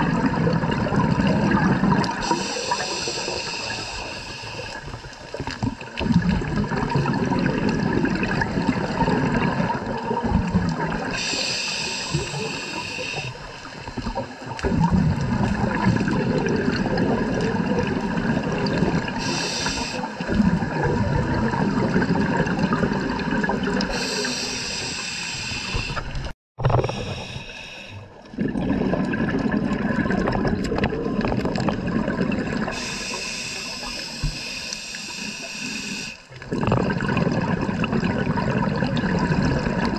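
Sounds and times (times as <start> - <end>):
gurgling exhaled bubbles: 0.0 - 24.9, 25.7 - 34.0, 36.3 - 39.9
regulator hiss on inhalation: 2.2 - 4.8, 11.1 - 13.5, 19.1 - 20.2, 23.9 - 26.1, 26.8 - 28.0, 32.7 - 36.3.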